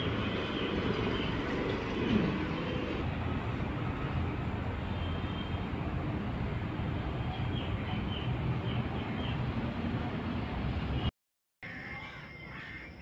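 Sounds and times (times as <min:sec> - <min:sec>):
train rumbling: 0:00.0 - 0:04.8.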